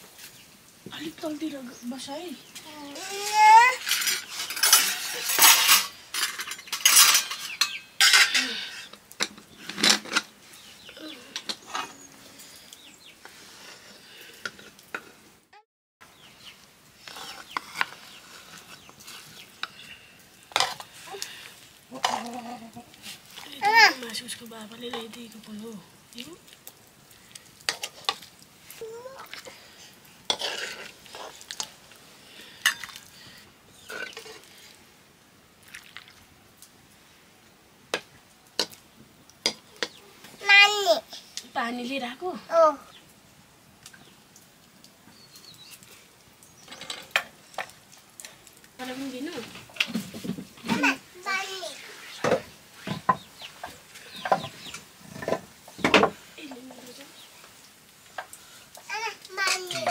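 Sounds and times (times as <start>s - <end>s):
metal spoon scraping a pot: 3.2s - 9.0s, 17.0s - 19.9s, 30.3s - 31.8s, 33.8s - 34.8s
spoon clinking on steel plates: 3.8s - 9.0s.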